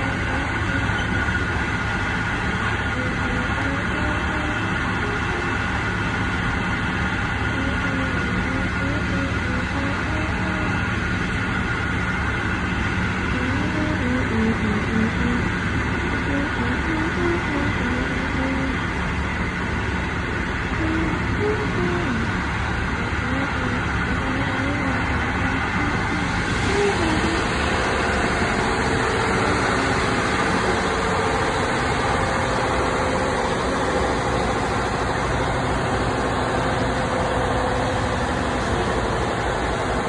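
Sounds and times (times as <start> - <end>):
train wheels rumbling on rails: 0.0 - 40.0.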